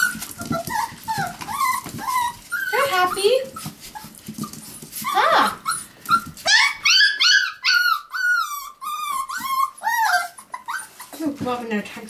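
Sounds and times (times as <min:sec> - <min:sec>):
puppy whining: 0:00.0 - 0:11.4.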